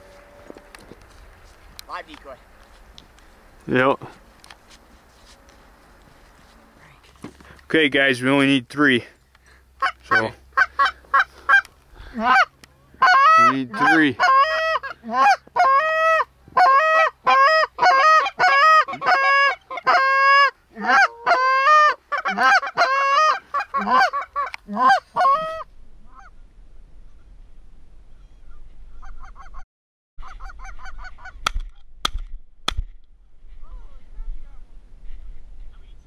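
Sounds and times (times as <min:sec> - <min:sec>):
geese honking: 0:09.8 - 0:26.4.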